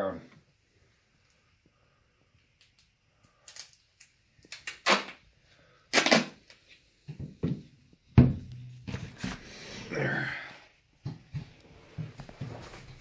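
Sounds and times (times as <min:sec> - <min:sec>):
duct tape ripping off roll: 0:04.4 - 0:05.2, 0:05.9 - 0:06.6.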